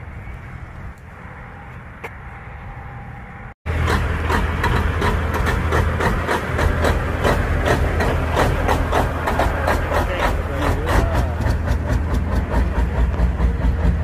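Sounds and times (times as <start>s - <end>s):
diesel truck engine clattering: 3.7s - 14.0s.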